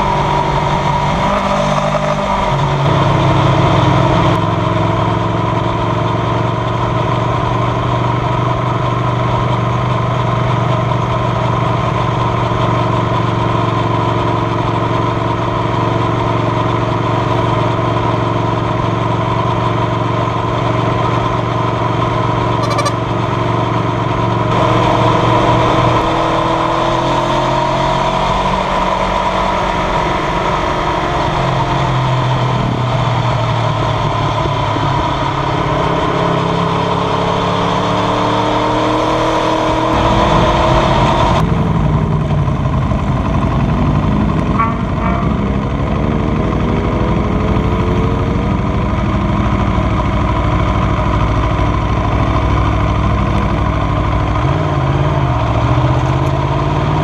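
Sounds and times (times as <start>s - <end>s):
motorcycle engine revving: 0.0s - 57.0s
wind rush: 39.8s - 42.1s.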